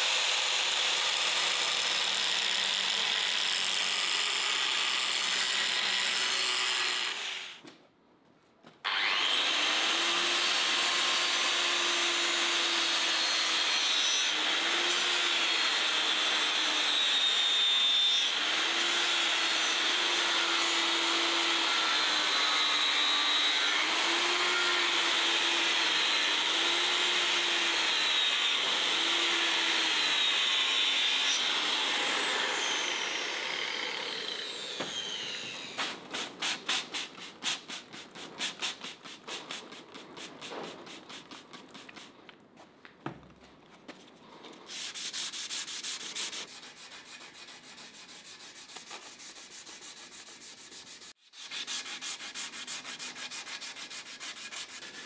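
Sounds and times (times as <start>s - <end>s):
electric grinder grinding: 8.9s - 35.9s.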